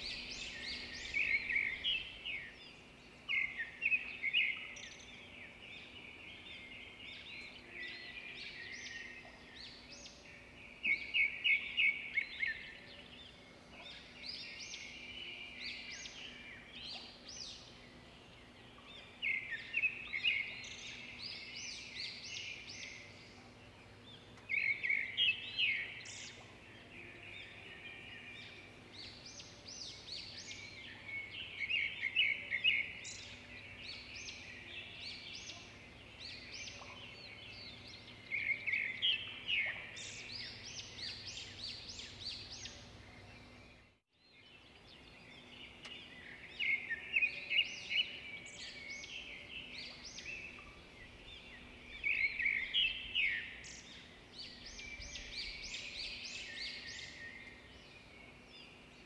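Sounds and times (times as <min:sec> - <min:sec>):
small birds chirping: 0:00.0 - 0:59.0.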